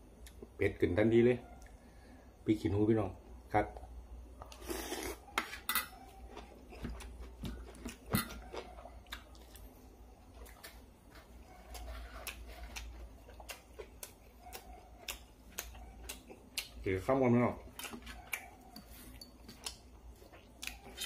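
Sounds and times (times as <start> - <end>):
man chewing: 4.4 - 16.9, 17.6 - 21.0.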